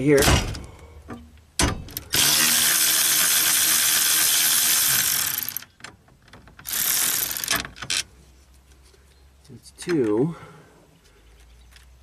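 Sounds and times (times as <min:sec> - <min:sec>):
cordless electric ratchet running: 0:02.1 - 0:05.7, 0:06.7 - 0:07.6.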